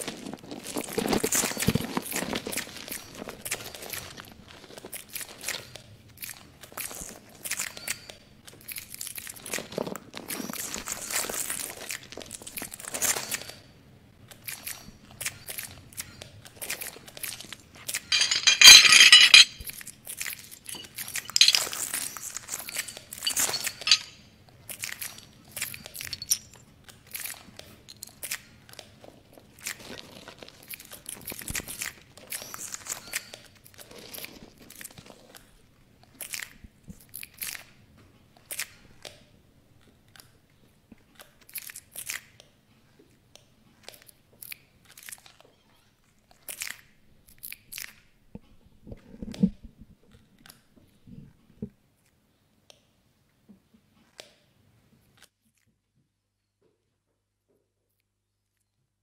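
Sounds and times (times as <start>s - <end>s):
crunching and crackling: 0.0s - 7.6s, 14.3s - 35.5s.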